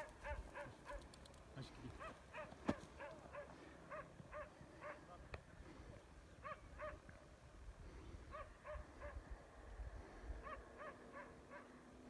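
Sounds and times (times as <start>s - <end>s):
distant dog barking: 0.0s - 1.1s, 1.9s - 5.2s, 6.4s - 7.1s, 8.3s - 9.3s, 10.4s - 11.8s.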